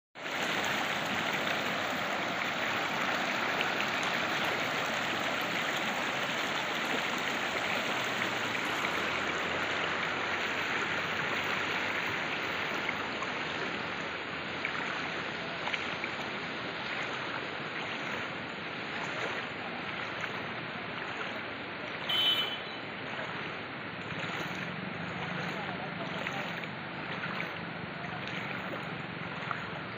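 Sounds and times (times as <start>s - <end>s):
floodwater rushing: 0.2s - 29.9s
brief high tone: 22.1s - 22.8s.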